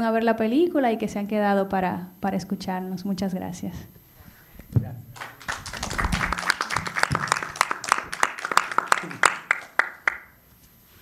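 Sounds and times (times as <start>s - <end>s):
audience applauding: 5.2s - 10.3s.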